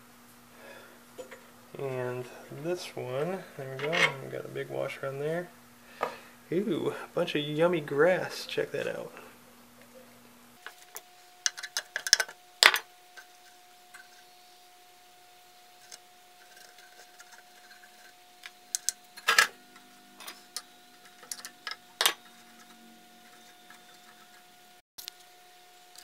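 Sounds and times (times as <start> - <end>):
faint steady hum: 0.0 - 26.0
small metal parts clinking: 11.4 - 14.2, 15.8 - 25.1.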